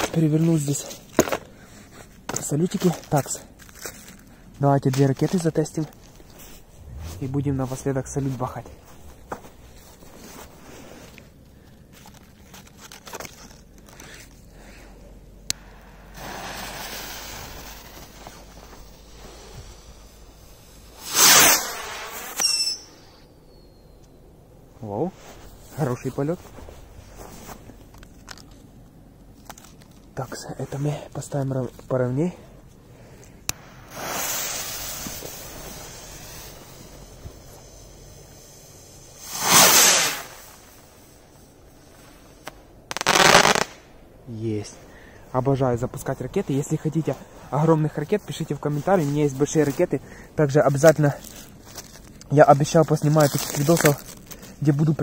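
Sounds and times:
rocket whoosh: 0:06.6 - 0:09.8, 0:20.9 - 0:22.5, 0:33.6 - 0:36.7, 0:39.2 - 0:40.7
sharp firework crack: 0:15.6 - 0:23.1, 0:33.5 - 0:40.8, 0:42.9 - 0:43.9
fuse hiss: 0:15.6 - 0:23.3, 0:33.4 - 0:43.8
descending high whistle: 0:21.9 - 0:23.3.

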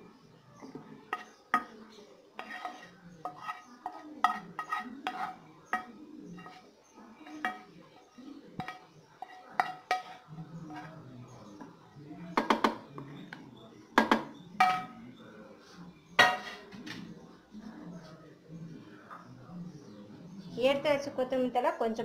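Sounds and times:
spatula scraping a pan: 0:00.7 - 0:11.8
spatula knocking on metal: 0:02.4 - 0:06.6.

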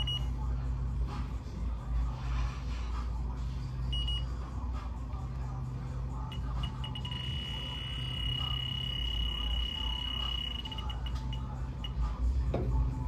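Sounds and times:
leak detector alarm beeping: 0:00.0 - 0:00.3, 0:03.9 - 0:04.3, 0:06.3 - 0:12.0
low steady hum: 0:00.0 - 0:13.0.

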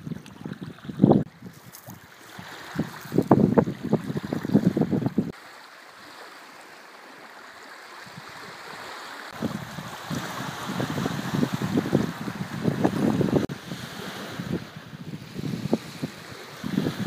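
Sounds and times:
wind buffeting microphone: 0:00.0 - 0:05.4, 0:09.3 - 0:17.0
water lapping at shore: 0:00.0 - 0:17.0.

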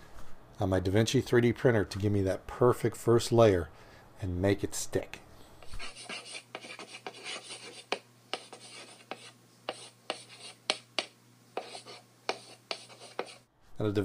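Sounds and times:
chalk scratching on blackboard: 0:05.6 - 0:13.4
chalk tapping on board: 0:05.6 - 0:13.4.

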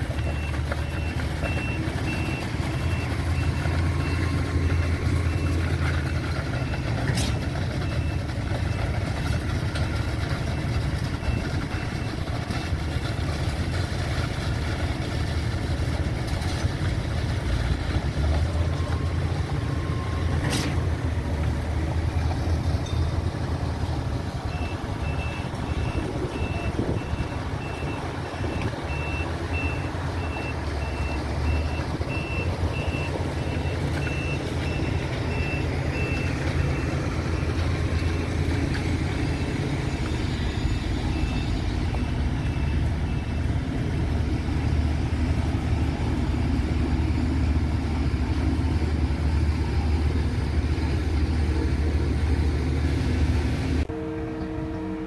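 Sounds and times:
diesel truck engine running: 0:00.0 - 0:55.0
reversing alarm beeps: 0:24.5 - 0:38.3.

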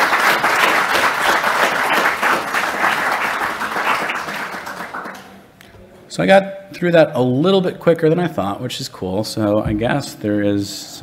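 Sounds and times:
audience applauding: 0:00.0 - 0:05.4.

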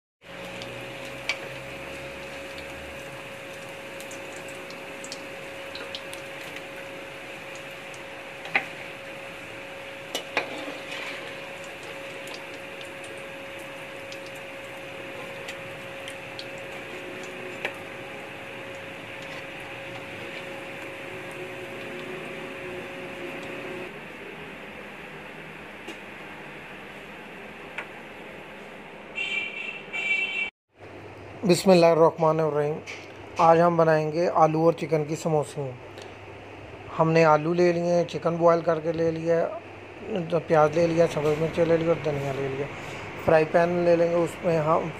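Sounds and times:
food deep-frying in hot oil: 0:00.2 - 0:24.0.

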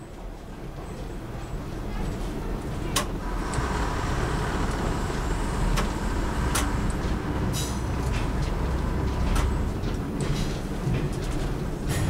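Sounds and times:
train diesel engine rumble: 0:00.0 - 0:12.0
sharp clicks and knocks: 0:05.7 - 0:12.0.

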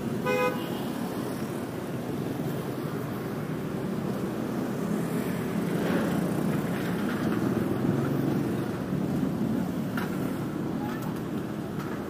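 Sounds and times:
street traffic rumble: 0:00.0 - 0:12.0.

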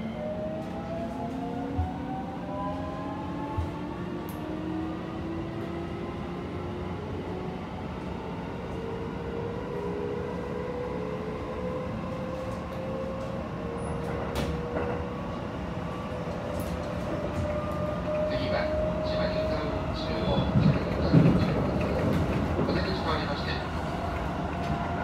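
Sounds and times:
train car rumble: 0:12.2 - 0:25.0.

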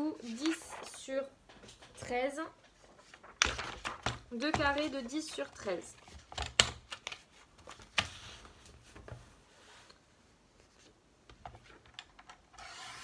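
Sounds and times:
paper rustling: 0:00.2 - 0:09.9.

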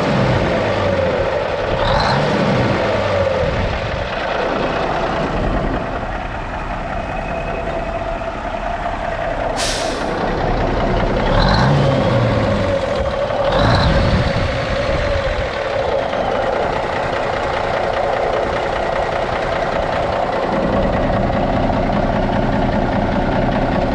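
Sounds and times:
diesel truck engine running: 0:00.0 - 0:23.9
air release hiss: 0:09.6 - 0:10.2.

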